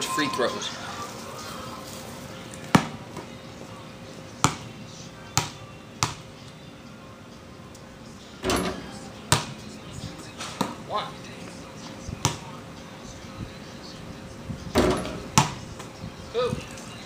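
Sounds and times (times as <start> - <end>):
ball hitting backboard and rim: 2.7 - 3.0, 4.4 - 4.7, 5.4 - 6.2, 8.4 - 9.6, 12.2 - 12.5, 14.8 - 15.6
basketball bouncing: 4.4 - 4.7, 5.4 - 6.2, 9.3 - 9.6, 12.2 - 12.5, 14.8 - 15.6.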